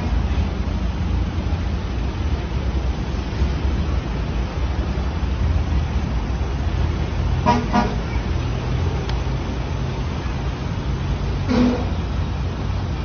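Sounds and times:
low rumble of engines: 0.0 - 13.0
vehicle horn honking: 7.4 - 8.1, 11.5 - 12.0.

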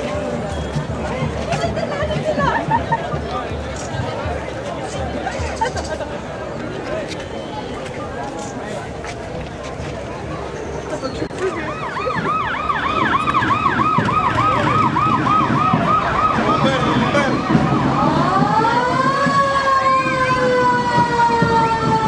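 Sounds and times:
emergency vehicle siren: 11.3 - 22.0.

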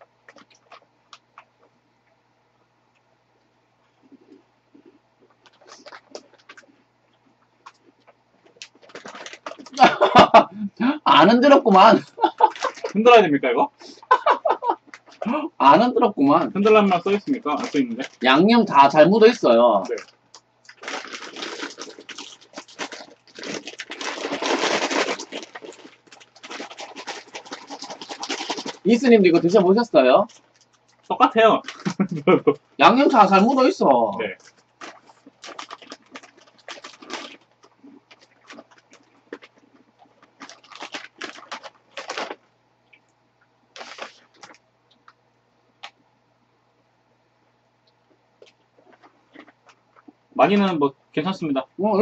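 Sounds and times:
plastic bag crinkling: 4.1 - 6.8, 7.6 - 10.4, 11.7 - 13.2, 16.6 - 32.4, 34.3 - 42.4, 43.7 - 45.1
crunchy snack being eaten: 4.1 - 10.1, 19.8 - 29.0, 34.4 - 42.4, 43.8 - 45.1, 48.4 - 50.2.

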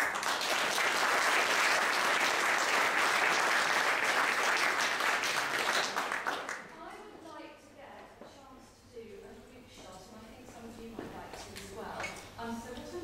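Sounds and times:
audience applauding: 0.0 - 6.7.

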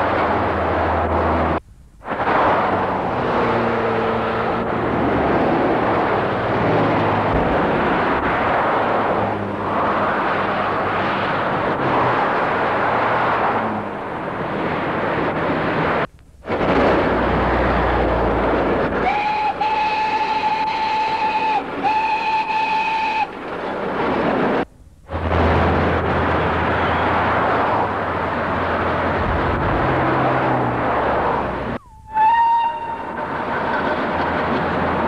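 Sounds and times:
road traffic noise: 0.0 - 35.0
steam whistle blasts: 19.0 - 23.3, 31.8 - 33.2.

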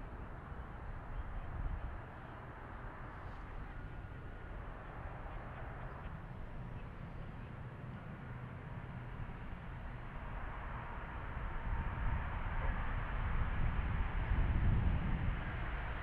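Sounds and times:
distant turboprop plane landing: 0.0 - 16.0.

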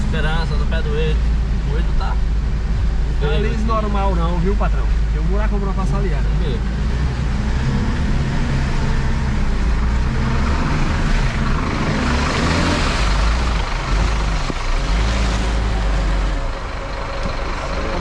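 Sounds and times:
vehicle engine running: 0.0 - 18.0.

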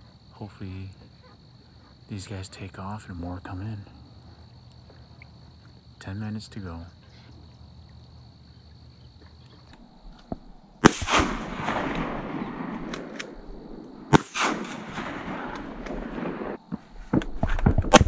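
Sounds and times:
shotgun shots with echo: 10.8 - 13.4, 14.1 - 16.6.

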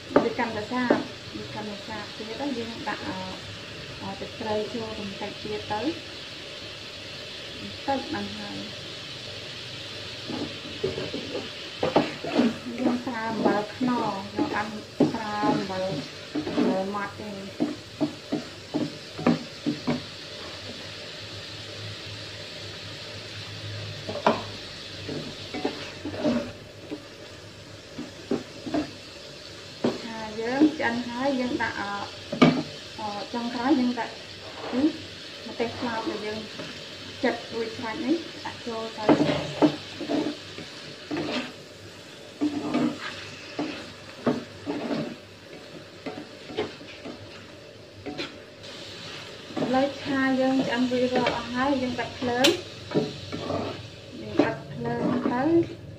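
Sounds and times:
snails sizzling in a wok: 0.0 - 55.9
spatula scraping a pan: 10.2 - 20.8, 24.1 - 27.1, 27.9 - 29.0, 34.4 - 55.8.

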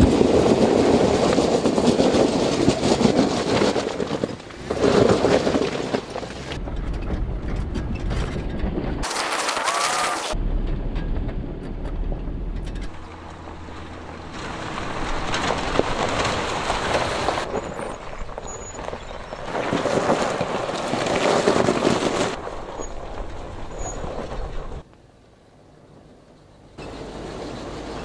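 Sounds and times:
tyres crunching over stones: 0.0 - 10.4, 12.8 - 24.9
vehicle engine running: 10.4 - 24.8.

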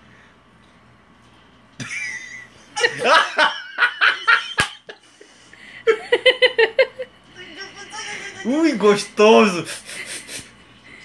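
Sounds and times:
people laughing: 1.8 - 5.2, 5.8 - 8.8.

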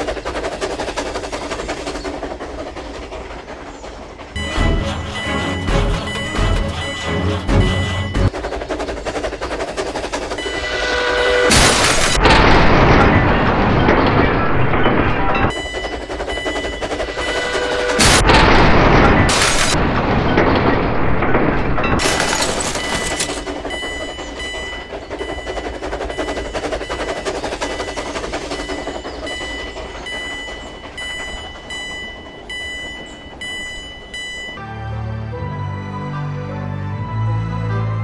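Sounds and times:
explosion blast: 11.5 - 15.2, 18.0 - 21.8
steady crackling: 15.5 - 34.6
high ringing: 22.3 - 34.6.

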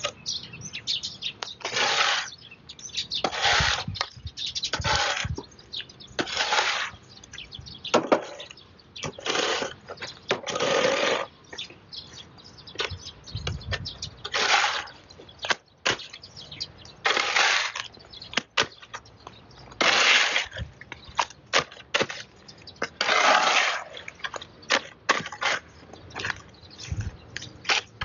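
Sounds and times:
shovel scraping concrete: 1.6 - 2.4, 3.2 - 5.4, 6.2 - 7.0, 7.9 - 11.3, 14.2 - 16.2, 17.0 - 18.9, 19.7 - 28.0.

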